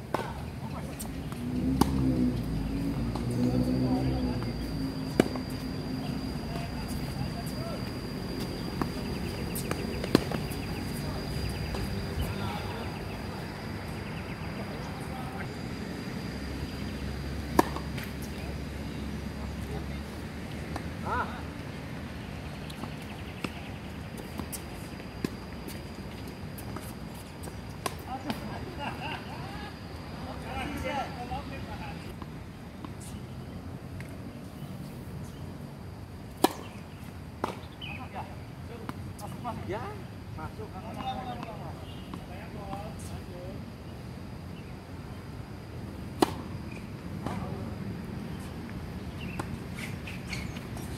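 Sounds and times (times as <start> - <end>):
racket hitting tennis ball: 1.8 - 2.2, 17.5 - 18.4, 46.2 - 46.6
faint distant tennis hits: 46.2 - 47.5.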